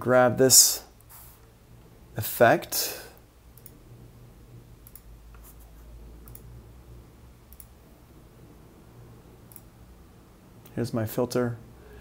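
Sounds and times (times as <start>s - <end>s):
low steady hum: 0.0s - 12.0s
computer mouse clicking: 3.5s - 3.8s, 4.8s - 5.6s, 6.2s - 6.5s, 7.5s - 7.8s, 9.5s - 9.7s.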